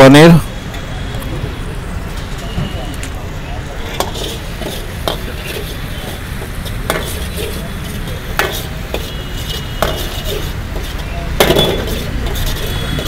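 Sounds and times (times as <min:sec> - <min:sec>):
metal ladle scraping wok: 0:03.8 - 0:13.0
ladle clanking against pan: 0:08.4 - 0:13.0.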